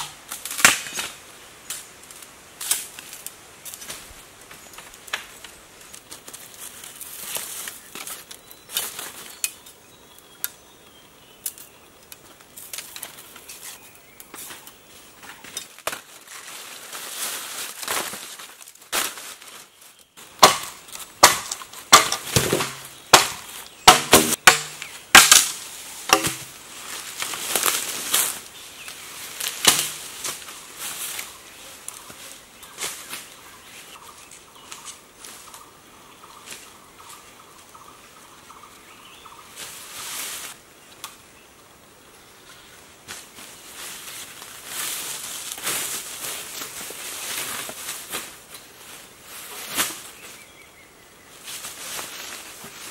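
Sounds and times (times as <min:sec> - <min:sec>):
machete chopping bamboo: 0:00.0 - 0:01.2, 0:20.4 - 0:26.6, 0:29.6 - 0:30.1
machete scraping bamboo: 0:20.4 - 0:26.6, 0:29.4 - 0:30.4.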